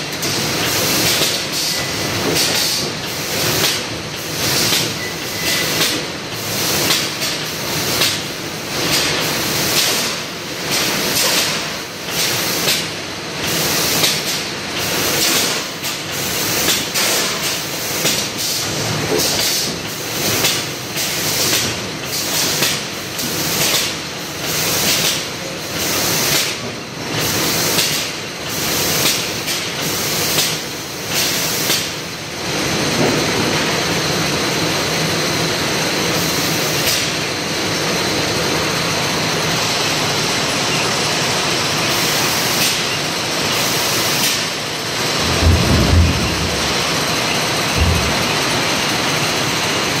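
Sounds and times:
packaging machinery running: 0.0s - 50.0s
low thuds: 45.2s - 48.6s.

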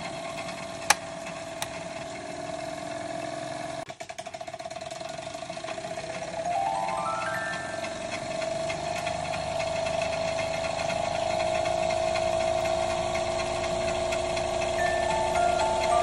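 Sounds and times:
mechanical organ notes: 6.3s - 8.9s, 14.3s - 16.0s
whirring rattling mechanism: 7.6s - 16.0s.

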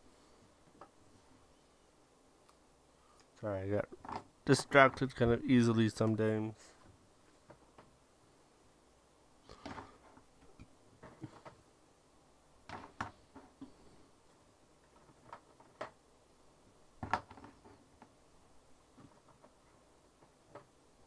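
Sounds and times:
plastic pots clicking and knocking: 12.6s - 13.8s, 17.0s - 18.2s.

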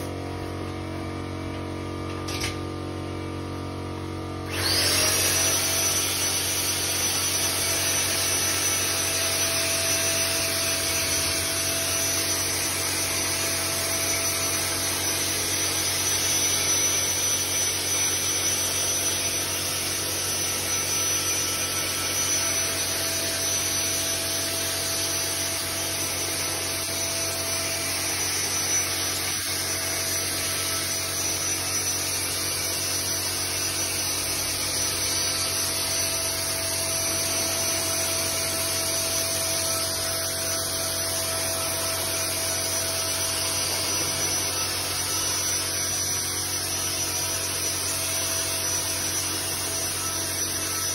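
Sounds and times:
machine drone: 4.4s - 50.9s.

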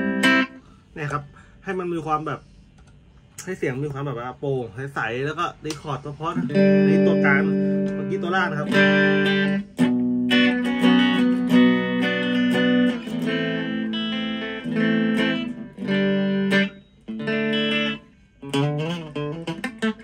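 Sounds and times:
electric guitar chords and notes: 0.0s - 0.8s, 6.4s - 20.0s.

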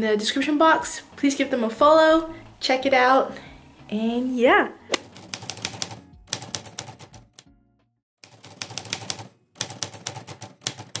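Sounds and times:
soft background music: 0.0s - 11.0s
typewriter key clicks: 8.3s - 11.0s.

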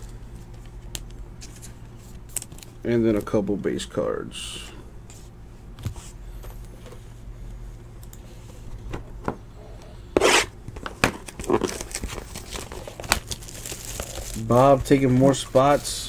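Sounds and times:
cards rustling and tapping: 10.7s - 15.8s.

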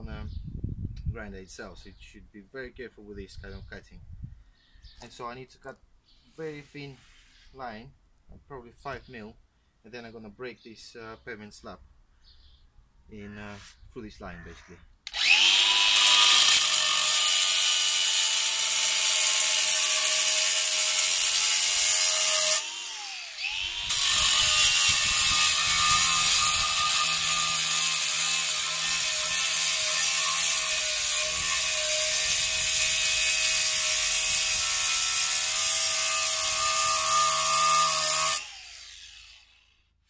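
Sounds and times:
angle grinder cutting concrete: 15.1s - 39.7s.

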